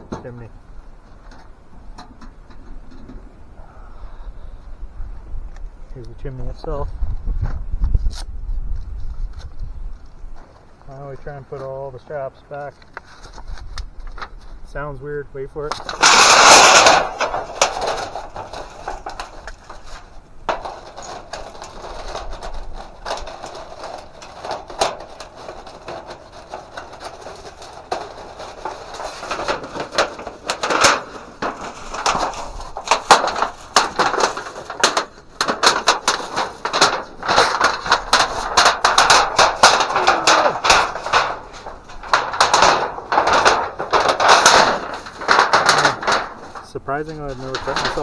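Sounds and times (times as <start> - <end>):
sheet-metal pipe crinkling and crackling: 0.0 - 48.0.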